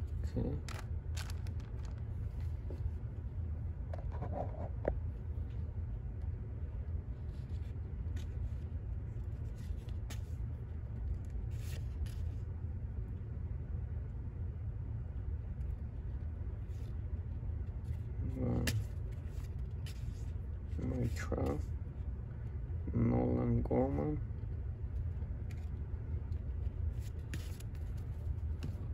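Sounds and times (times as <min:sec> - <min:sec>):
low background hum: 0:00.0 - 0:28.9
trading cards sliding and clicking: 0:00.6 - 0:02.5, 0:27.0 - 0:28.9.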